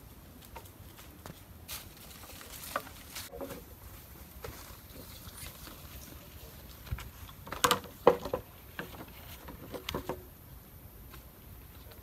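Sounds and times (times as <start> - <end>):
bamboo poles knocking: 6.9 - 10.3.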